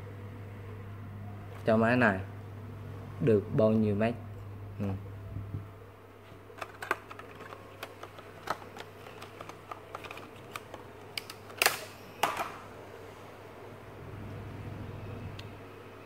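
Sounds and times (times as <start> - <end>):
plastic blister pack crackling: 6.6 - 12.4.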